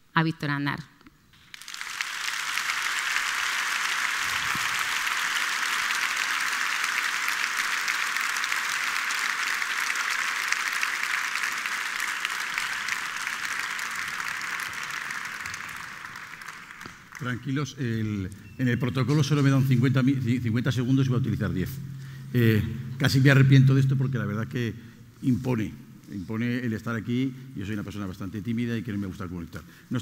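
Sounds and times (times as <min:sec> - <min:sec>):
audience applauding: 0:01.4 - 0:18.2.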